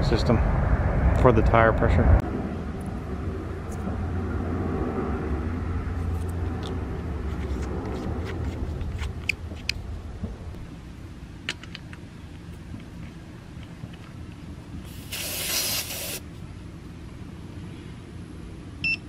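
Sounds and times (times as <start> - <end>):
vehicle engine rumbling: 0.0 - 18.9.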